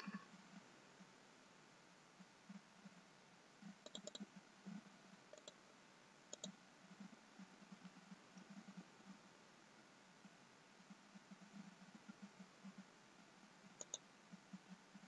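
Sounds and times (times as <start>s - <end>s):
faint computer mouse clicks: 3.8s - 4.3s, 5.3s - 5.6s, 6.3s - 6.6s, 13.7s - 14.0s.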